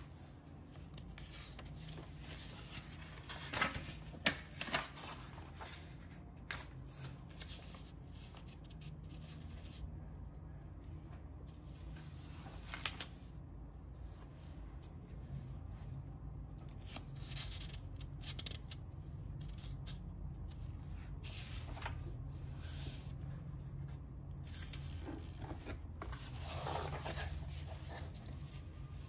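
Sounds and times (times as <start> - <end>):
paper pages rustling: 0.0 - 9.8, 11.8 - 13.2, 21.2 - 23.0, 24.5 - 29.0.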